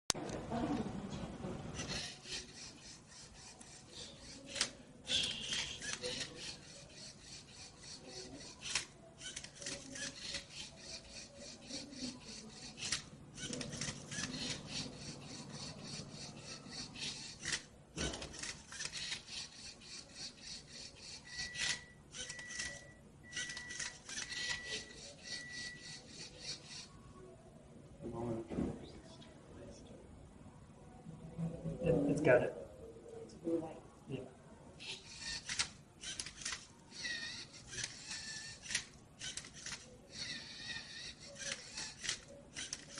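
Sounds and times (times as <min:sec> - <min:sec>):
robot motors whirring: 0:01.7 - 0:26.9, 0:34.8 - 0:42.9.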